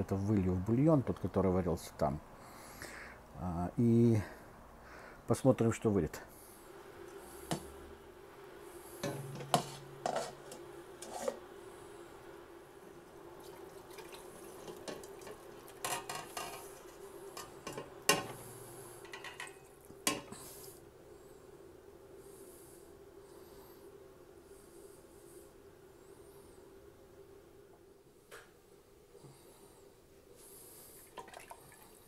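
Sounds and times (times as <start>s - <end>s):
faint hum: 0.0s - 32.0s
metal pots clanking: 9.0s - 11.4s, 14.0s - 18.4s, 19.0s - 20.4s
liquid pouring and splashing: 13.4s - 15.9s, 31.0s - 32.0s.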